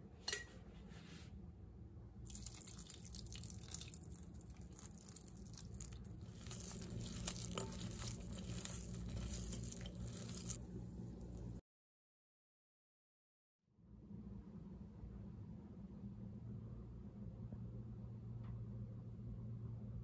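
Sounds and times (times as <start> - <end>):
fried vegetables tossed crackling: 2.3 - 11.6.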